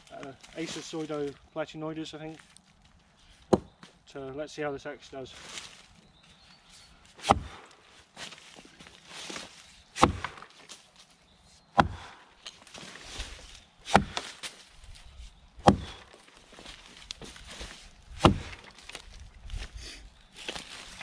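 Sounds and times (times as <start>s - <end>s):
axe chopping log: 3.5s - 3.7s, 7.2s - 7.7s, 10.0s - 10.6s, 11.8s - 12.2s, 13.8s - 14.5s, 15.6s - 16.2s, 18.1s - 18.8s.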